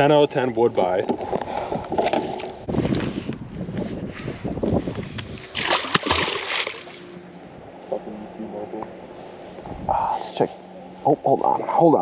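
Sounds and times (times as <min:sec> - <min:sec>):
fish splashing at water surface: 0:05.5 - 0:07.0.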